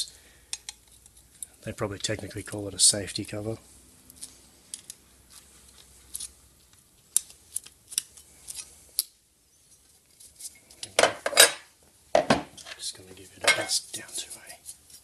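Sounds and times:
metal cover clattering on bench: 0:11.0 - 0:12.5.

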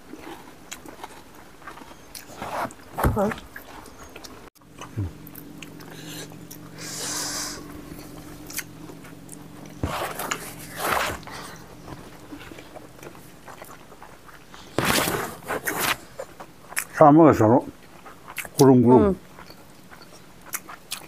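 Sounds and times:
faint steady hum: 0:00.0 - 0:21.0
people chewing: 0:00.0 - 0:21.0.

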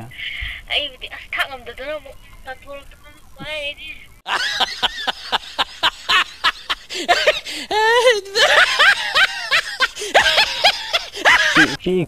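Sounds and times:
high-pitched rapid laughter: 0:04.3 - 0:11.8.

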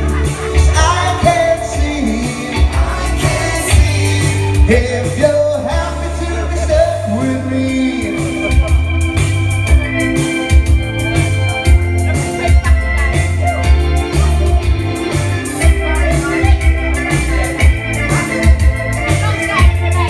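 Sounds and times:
man singing into microphone: 0:00.0 - 0:09.0
held organ chords: 0:00.0 - 0:20.0
pop backing track: 0:00.0 - 0:20.0.

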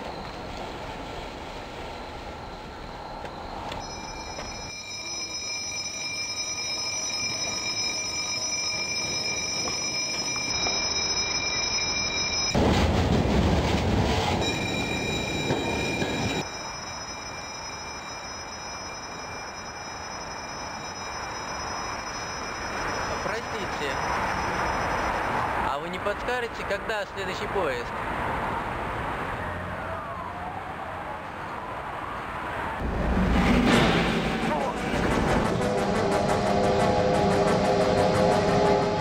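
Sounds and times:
train wheel squeal: 0:00.0 - 0:12.6, 0:14.0 - 0:25.8, 0:33.3 - 0:39.0
train rushing past: 0:00.0 - 0:29.2, 0:32.4 - 0:39.0
steady background noise: 0:00.0 - 0:39.0.

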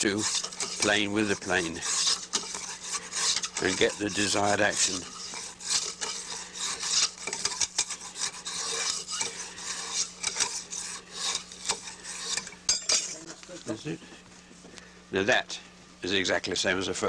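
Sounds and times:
chisel scraping bamboo: 0:00.0 - 0:13.4.

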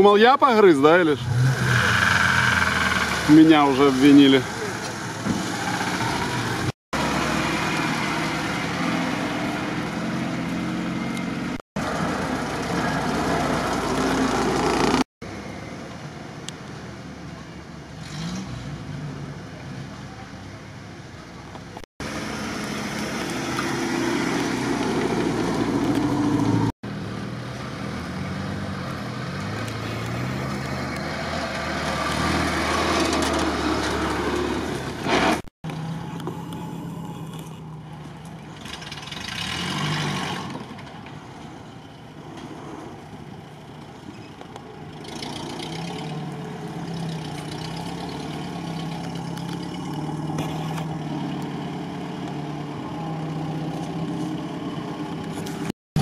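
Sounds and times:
off-road engines revving: 0:00.5 - 0:15.1, 0:17.9 - 0:20.1, 0:22.0 - 0:56.0.

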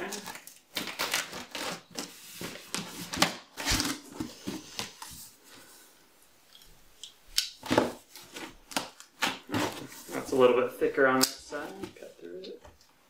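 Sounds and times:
knife cutting packing tape: 0:00.1 - 0:02.1, 0:07.4 - 0:09.9.

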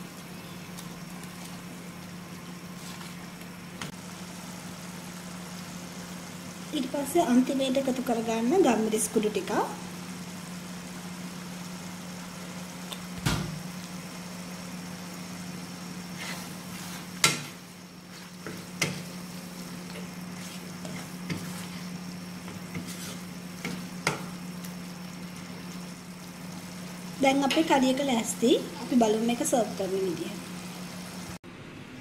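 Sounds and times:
curry sizzling in a wok: 0:00.0 - 0:31.4
steady low hum: 0:00.0 - 0:32.0
spatula knocking and scraping pan: 0:16.2 - 0:24.4.

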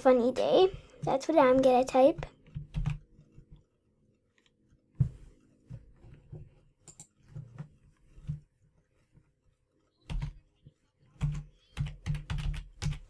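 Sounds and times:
computer keys and mouse clicking: 0:01.0 - 0:04.8, 0:06.8 - 0:07.6, 0:09.9 - 0:13.0.

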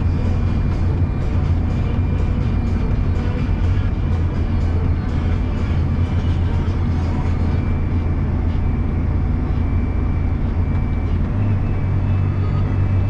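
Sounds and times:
diesel tractor engine droning: 0:00.0 - 0:13.0
faint steady whine: 0:00.0 - 0:13.0.

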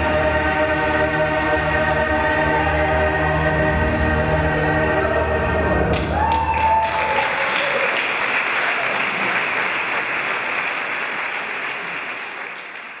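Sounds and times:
audience applauding: 0:05.9 - 0:13.0.

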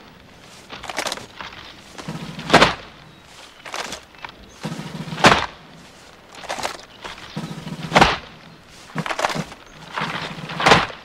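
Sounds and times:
boots striking turf: 0:00.0 - 0:11.0
hands slapping rifles: 0:00.7 - 0:01.5, 0:07.9 - 0:11.0.

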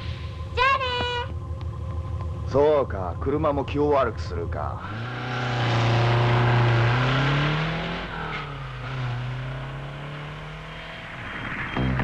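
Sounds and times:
car engine accelerating: 0:01.4 - 0:12.0.

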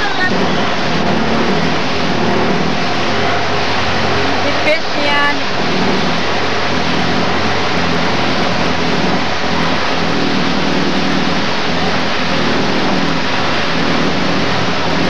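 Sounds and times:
boat engine drone: 0:00.0 - 0:15.0
loud steady rushing noise: 0:00.0 - 0:15.0.

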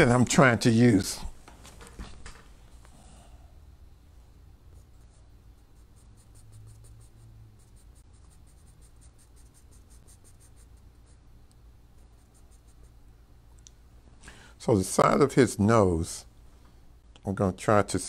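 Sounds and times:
pencil scratching on paper: 0:04.7 - 0:11.2, 0:12.0 - 0:13.0.

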